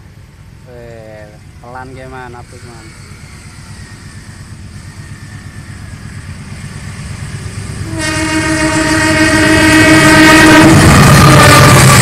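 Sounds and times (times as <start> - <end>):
diesel train rumbling: 0.0 - 12.0
locomotive horn blast: 7.8 - 12.0.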